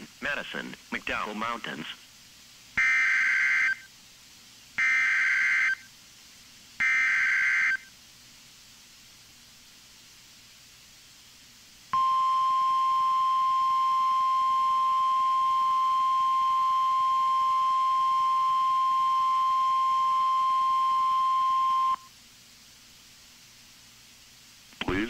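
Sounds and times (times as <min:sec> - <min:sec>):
faint radio hiss: 0:00.0 - 0:25.0
high pure alarm beep: 0:04.8 - 0:05.9, 0:12.0 - 0:22.1.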